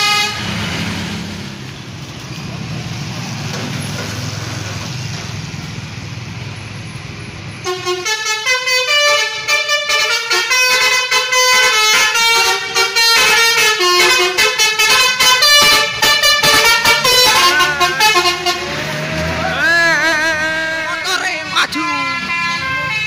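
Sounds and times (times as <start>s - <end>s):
bus multi-tone air horn tune: 0.0s - 0.6s, 7.6s - 23.0s
traffic and engine rumble: 0.0s - 23.0s.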